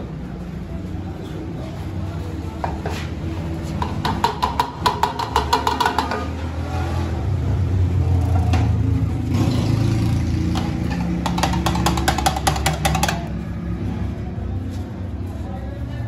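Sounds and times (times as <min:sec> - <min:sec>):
metal pots and utensils clinking: 0:03.8 - 0:06.5.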